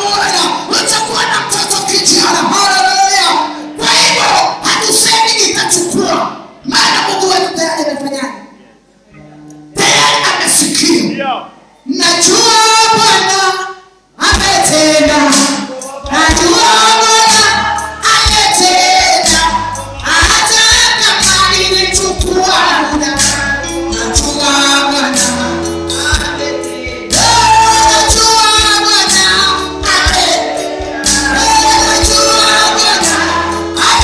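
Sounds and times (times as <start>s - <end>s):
congregation singing along: 0.0s - 7.6s, 9.7s - 11.0s, 11.9s - 34.0s
woman singing into a microphone: 11.9s - 34.0s
bass line: 16.0s - 34.0s.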